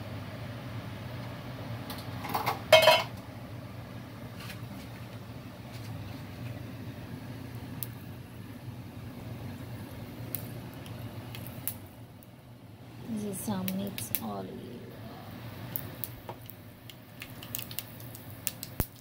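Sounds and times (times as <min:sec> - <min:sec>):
steady low hum: 0:00.0 - 0:19.0
cookware clattering: 0:02.2 - 0:03.1.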